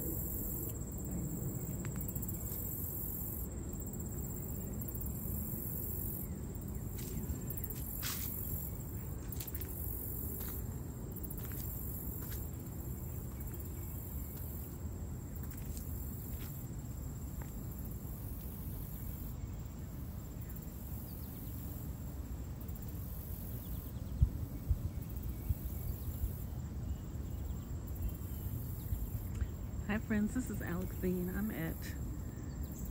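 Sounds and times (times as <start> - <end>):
insect buzz: 0.0 - 32.9.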